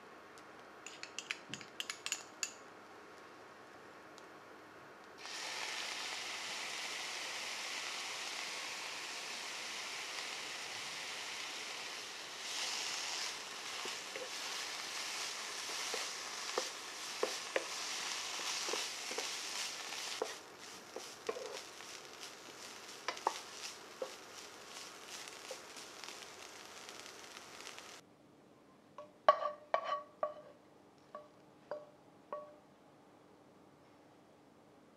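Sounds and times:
food sizzling in a frying pan: 5.2s - 28.0s.

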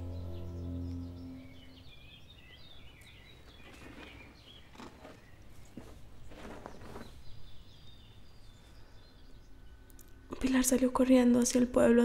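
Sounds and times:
small birds chirping: 0.0s - 12.0s
rustling on gravelly ground: 3.1s - 7.7s
scrapes on gravel: 3.5s - 7.3s.

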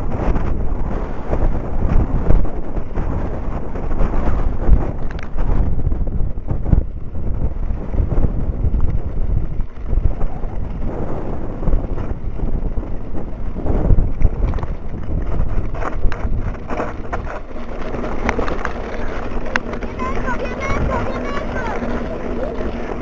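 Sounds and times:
wind buffeting microphone: 0.0s - 23.0s
tyres rumbling on gravel: 3.7s - 23.0s
bike knocks and rattles: 11.6s - 20.2s.

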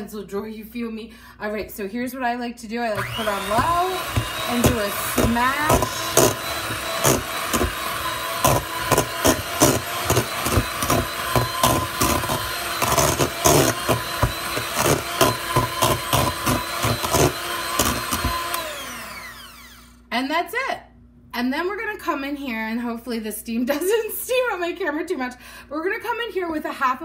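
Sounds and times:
electric hand mixer running: 2.9s - 20.0s.

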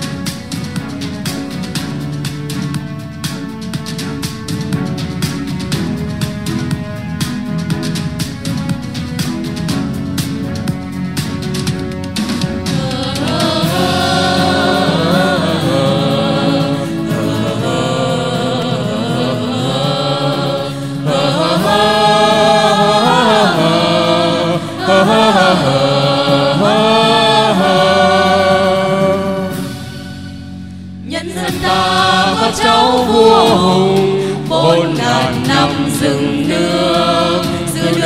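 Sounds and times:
backing music: 0.0s - 38.0s
choir singing: 12.6s - 29.8s, 31.0s - 38.0s.

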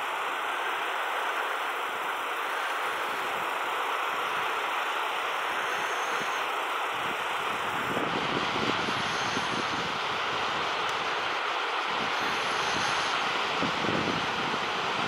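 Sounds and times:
steady rushing outdoor hiss: 0.0s - 15.0s
wind buffeting microphone: 7.0s - 15.0s.

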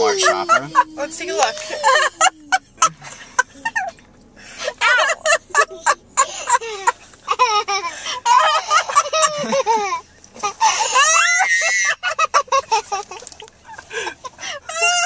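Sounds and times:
woman laughing: 0.0s - 4.0s, 4.8s - 10.0s.

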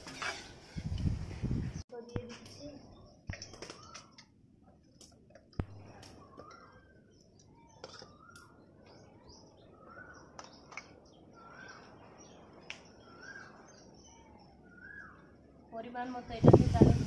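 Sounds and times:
bird calling faintly: 5.6s - 15.5s.

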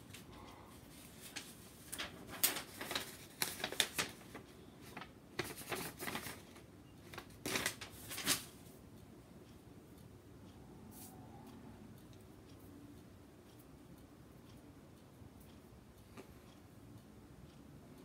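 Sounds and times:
paper letter rustling: 0.9s - 8.6s.

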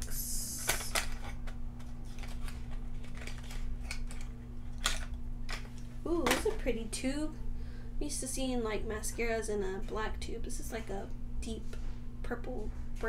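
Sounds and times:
box opening scraping hiss: 0.1s - 1.1s
packaging clicks and rustles: 0.9s - 5.8s.

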